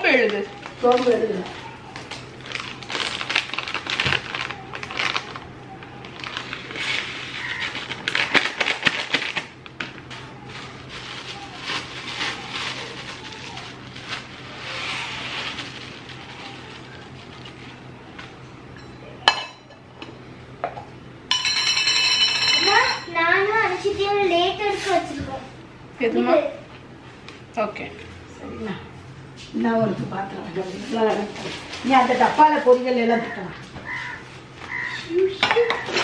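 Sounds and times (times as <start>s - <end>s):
plastic packet crinkling: 0.0s - 18.0s.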